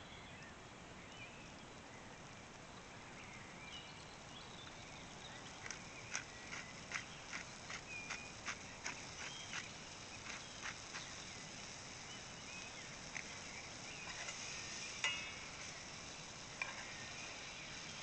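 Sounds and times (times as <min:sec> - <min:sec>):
wood fire crackling and popping: 0:04.4 - 0:18.0.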